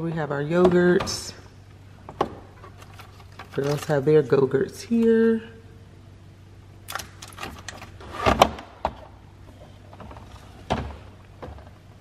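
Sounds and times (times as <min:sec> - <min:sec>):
plastic clatter and rustle: 0:02.1 - 0:04.0, 0:06.9 - 0:11.8.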